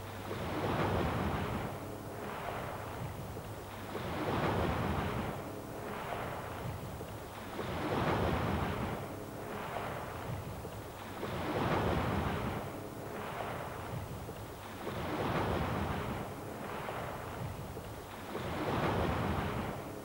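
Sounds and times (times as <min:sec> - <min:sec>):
sea waves washing in: 0:00.0 - 0:20.0.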